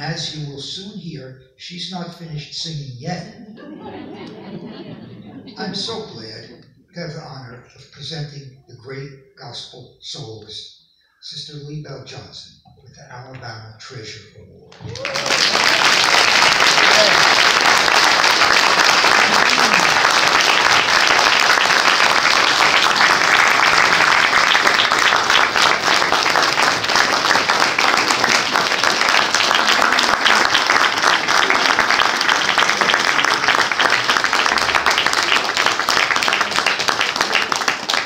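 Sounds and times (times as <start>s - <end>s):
audience applauding: 14.7s - 38.0s.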